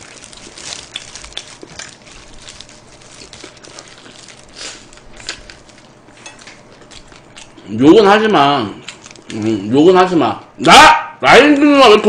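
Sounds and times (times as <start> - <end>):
person chewing fried chicken: 0.0 - 7.8, 8.6 - 9.7.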